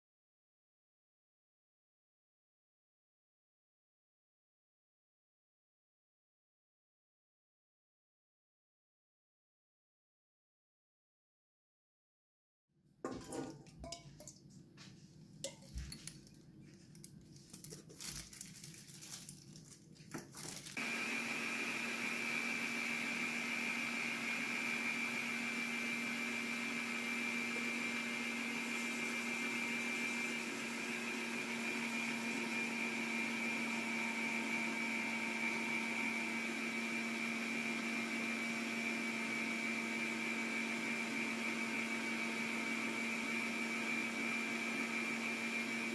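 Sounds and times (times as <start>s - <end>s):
whisk beating eggs in metal bowl: 15.4s - 16.3s, 21.3s - 45.9s
stand mixer humming: 20.7s - 45.9s.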